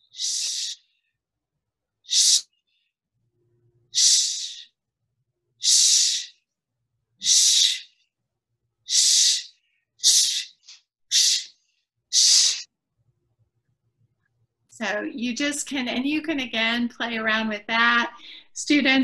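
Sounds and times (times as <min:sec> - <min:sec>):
sharp hissed exhales: 0:00.1 - 0:00.8, 0:02.1 - 0:02.4, 0:04.0 - 0:04.7, 0:05.6 - 0:06.4, 0:07.2 - 0:07.9, 0:08.9 - 0:12.7.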